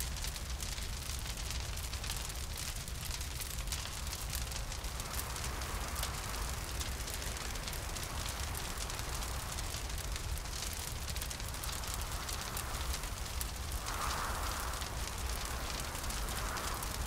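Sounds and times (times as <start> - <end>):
fire crackling and popping: 0.0 - 17.0
low steady rumble: 2.3 - 17.0
hollow wind blowing: 4.8 - 17.0.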